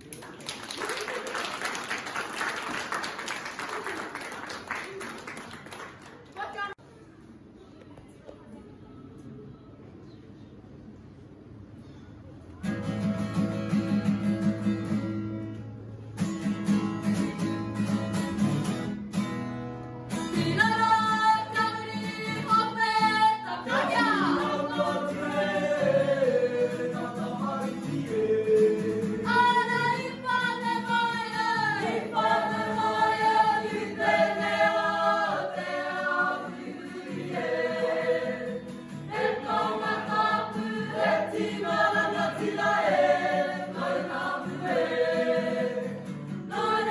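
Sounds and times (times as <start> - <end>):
strummed acoustic guitar: 12.6 - 46.9
group singing in unison: 20.4 - 46.9.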